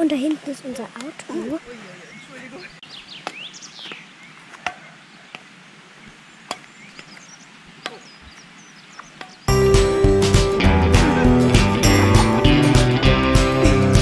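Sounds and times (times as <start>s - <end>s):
rackets hitting shuttlecock: 4.6s - 5.4s, 6.5s - 6.7s
music: 9.5s - 14.0s.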